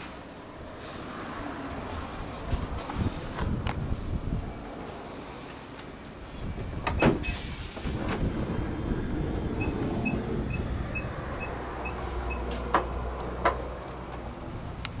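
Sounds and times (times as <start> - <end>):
electronic warning beeps: 9.6 - 12.4.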